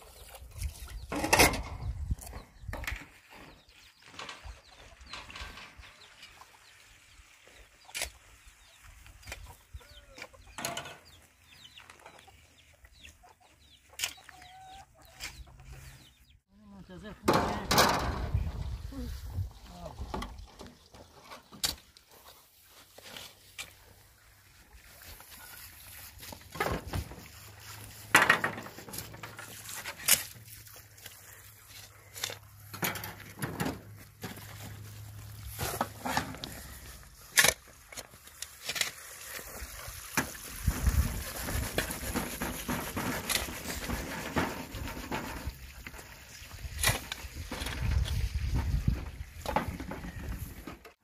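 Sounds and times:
digging tool striking stony soil: 35.5 - 39.2.

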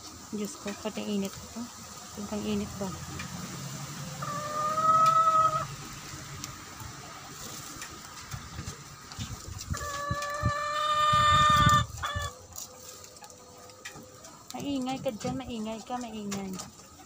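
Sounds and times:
wood fire crackling: 5.7 - 9.7.

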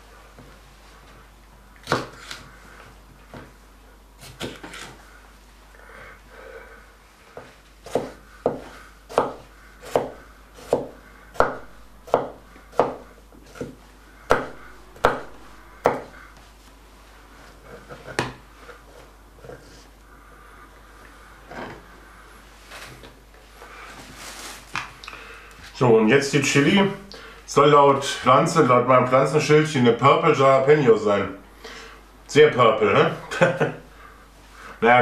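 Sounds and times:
knife chopping on wooden board: 1.8 - 2.4, 7.4 - 16.2.

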